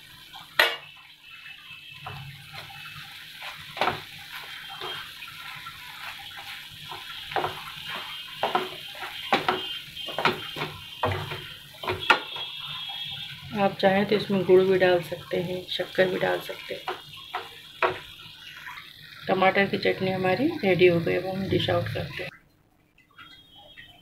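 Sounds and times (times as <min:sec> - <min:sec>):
sauce simmering and bubbling: 0:00.0 - 0:22.4
spatula scraping a frying pan: 0:02.1 - 0:12.6.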